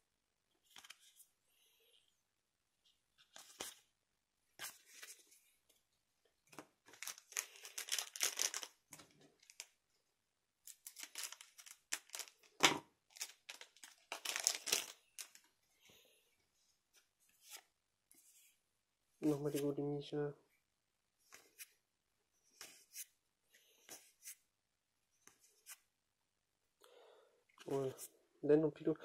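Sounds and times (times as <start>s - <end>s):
foil wrapper crinkling and tearing: 6.9s - 8.8s, 10.7s - 12.6s, 13.2s - 15.4s.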